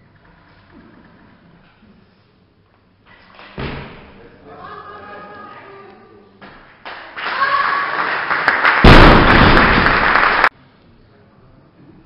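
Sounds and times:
spectators clapping and cheering: 6.8s - 10.5s
barbell dropped with heavy thud: 8.8s - 10.0s.

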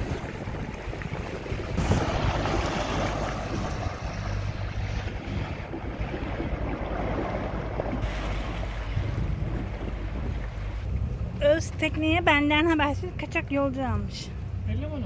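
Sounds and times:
wind buffeting microphone: 0.0s - 14.7s
sea water rushing along hulls: 0.0s - 15.0s.

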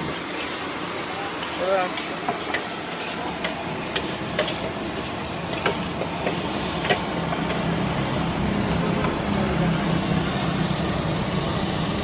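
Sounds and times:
steady frying hiss: 0.0s - 12.0s
metal spatula scraping wok: 1.4s - 9.0s.

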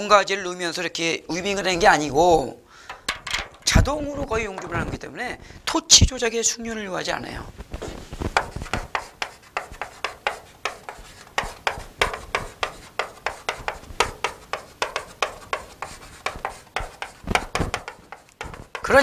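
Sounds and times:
chalk scratching on chalkboard: 8.2s - 19.0s.

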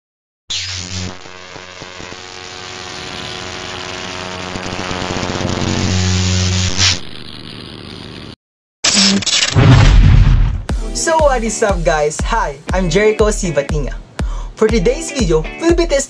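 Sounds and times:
electric buzzing with low hum: 0.5s - 11.4s.

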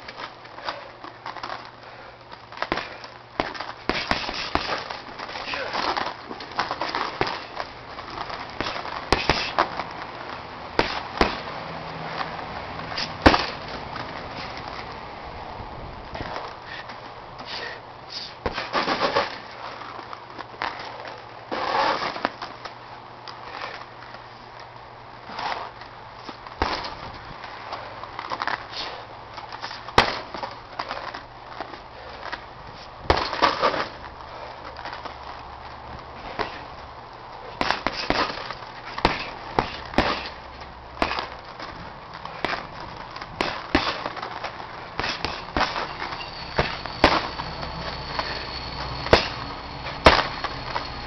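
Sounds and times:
punches smacking heavy bag: 2.6s - 9.9s, 10.8s - 11.6s, 12.9s - 14.1s, 18.3s - 19.4s, 26.6s - 27.2s, 29.9s - 31.1s, 33.0s - 34.0s, 36.2s - 36.7s, 37.6s - 41.7s, 42.3s - 47.4s, 49.0s - 50.4s.

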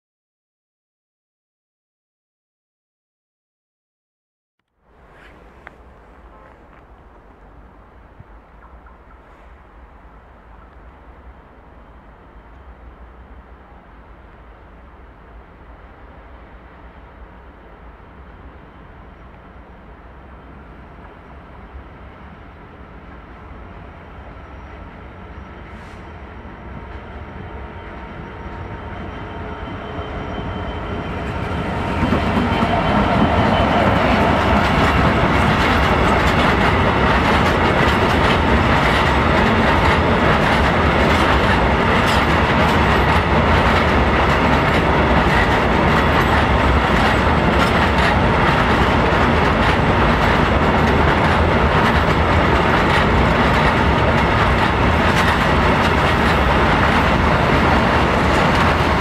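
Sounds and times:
diesel locomotive passing: 4.8s - 59.0s
train wheels clacking over rail joints: 31.9s - 59.0s.

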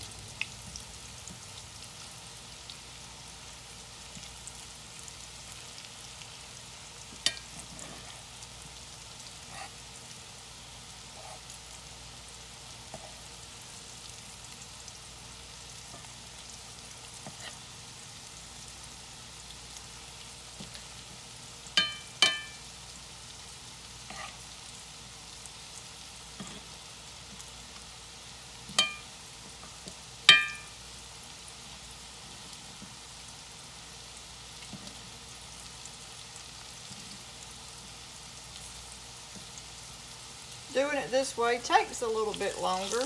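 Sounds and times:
squash frying in hot oil: 0.0s - 43.0s
metal spoon clinking on skillet: 7.2s - 7.6s, 21.8s - 22.6s, 28.7s - 29.1s, 30.3s - 30.8s.

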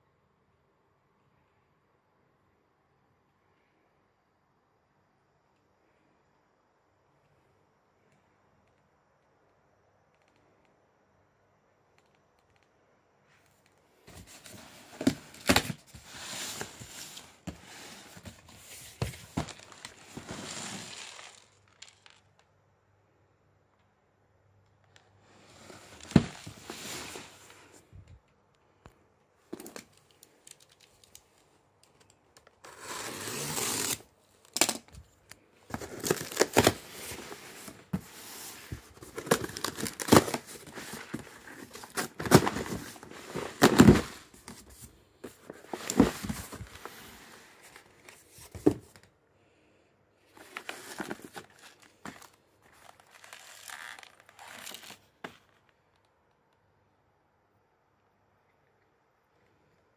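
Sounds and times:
cardboard and plastic crinkling: 14.1s - 22.4s, 25.5s - 27.8s, 32.7s - 49.1s, 50.3s - 55.7s
tape tearing: 32.6s - 35.0s, 35.7s - 37.6s, 39.0s - 44.2s, 50.4s - 55.0s.

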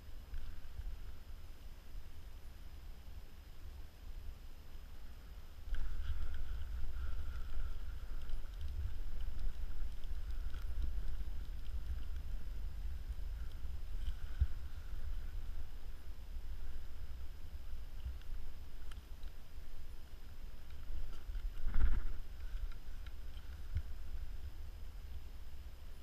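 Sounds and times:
low rumbling handling noise: 5.6s - 25.1s.

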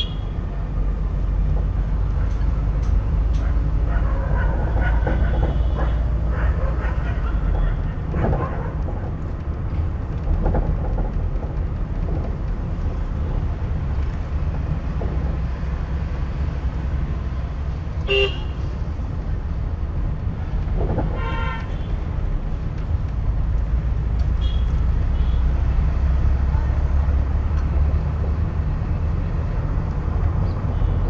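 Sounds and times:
car horn: 0.0s - 0.4s, 18.0s - 18.7s, 21.1s - 22.0s, 24.4s - 25.6s
car engine and road rumble: 0.0s - 31.0s.

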